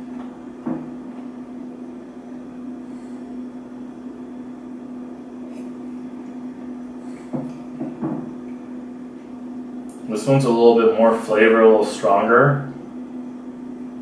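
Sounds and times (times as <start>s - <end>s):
low room hum: 0.0s - 14.0s
glass set down on table: 7.3s - 8.3s.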